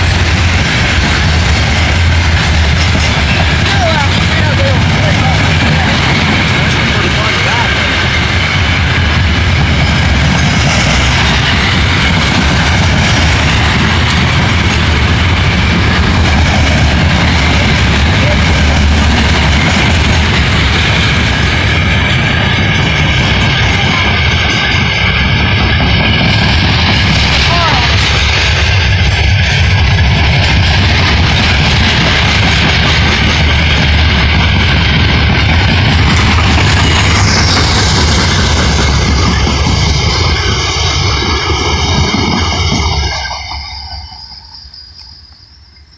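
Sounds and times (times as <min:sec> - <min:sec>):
steel wheels rolling on rail: 0:00.0 - 0:45.9.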